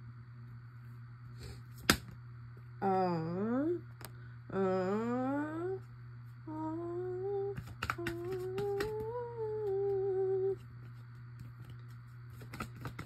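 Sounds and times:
steady low hum: 0.0s - 13.0s
woman humming a tune: 2.8s - 3.9s, 4.5s - 10.6s.

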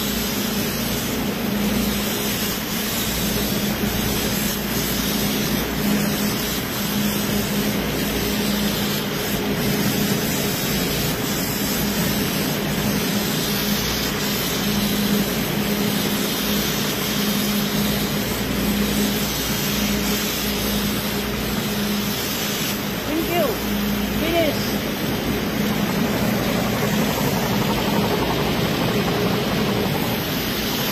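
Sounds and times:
spray gun hissing: 0.0s - 30.9s
steady low hum: 18.0s - 30.9s.

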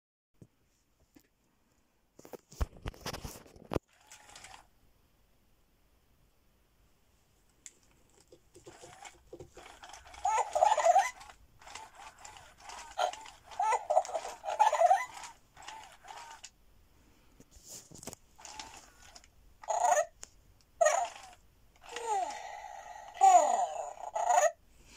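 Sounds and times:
toy koala electronic cries: 8.7s - 16.5s, 18.4s - 20.1s, 20.8s - 24.6s.

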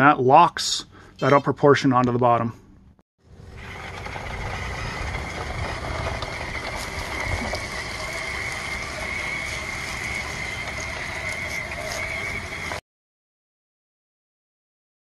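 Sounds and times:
toy truck motor whine: 3.3s - 12.8s.

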